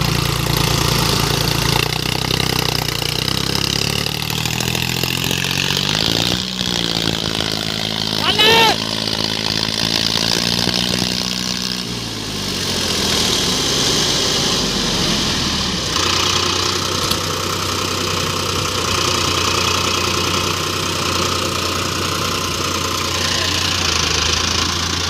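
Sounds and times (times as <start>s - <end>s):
tractor diesel engines running: 0.0s - 25.0s.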